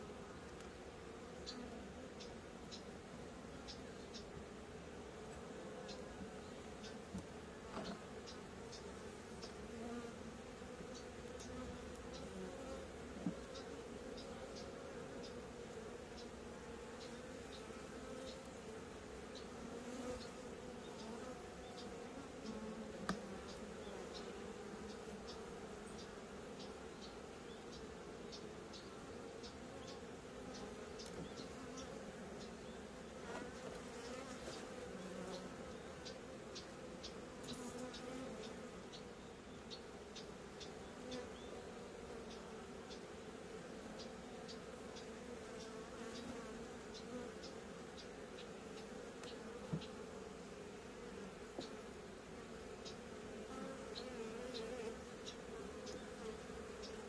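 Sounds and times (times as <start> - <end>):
bees buzzing: 0.0 - 57.0
faint high ticks: 13.2 - 15.4, 21.0 - 32.6, 44.0 - 50.0.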